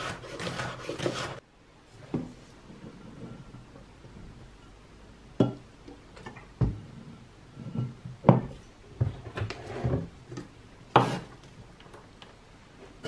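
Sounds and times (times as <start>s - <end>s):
knife scraping on cutting board: 0.0s - 1.4s, 11.0s - 11.3s.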